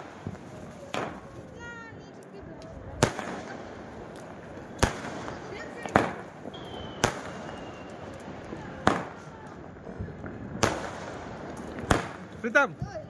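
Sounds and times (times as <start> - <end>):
fireworks bangs: 0.0 - 13.0
fireworks crackling: 0.0 - 13.0.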